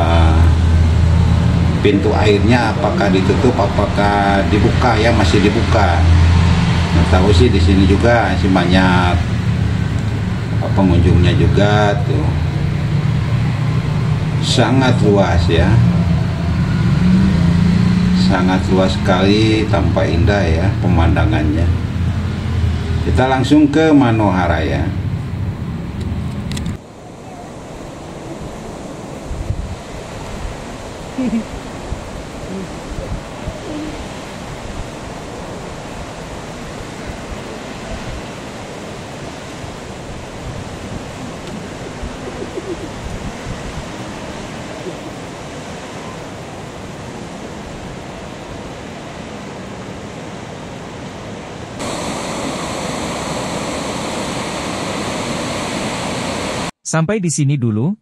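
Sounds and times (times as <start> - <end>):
water rushing through spillway: 0.0 - 22.0, 27.0 - 56.7
steady wind hiss: 0.0 - 56.7
wind buffeting microphone: 25.0 - 49.3.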